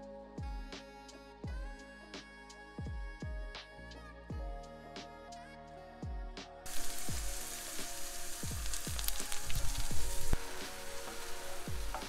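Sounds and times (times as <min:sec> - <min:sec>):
music with thudding beat: 0:00.4 - 0:01.8, 0:02.8 - 0:04.7, 0:06.0 - 0:12.0
meat sizzling in a skillet: 0:06.7 - 0:12.0.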